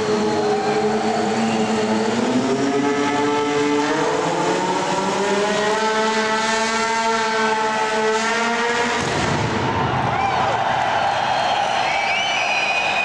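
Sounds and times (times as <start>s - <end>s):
motorcycle engine revving high: 0.0s - 9.2s.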